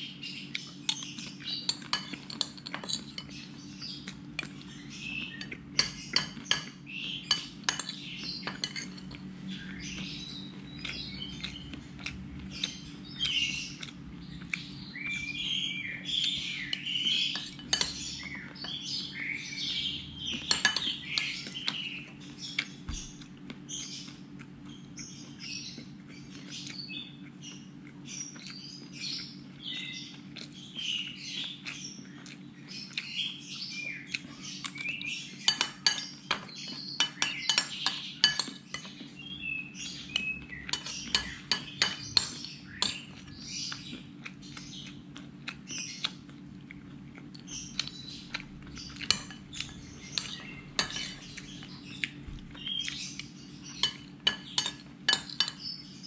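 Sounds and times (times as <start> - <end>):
birds chirping: 0.0 - 56.0
steady low hum: 0.0 - 56.0
utensils clinking against dishes: 0.8 - 10.2, 15.2 - 19.3, 20.3 - 22.1, 34.6 - 43.3, 48.8 - 51.9, 53.6 - 55.8.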